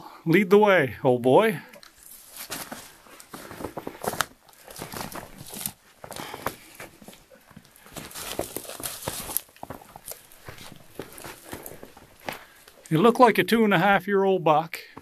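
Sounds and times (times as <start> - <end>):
footsteps crunching in snow: 2.1 - 12.6.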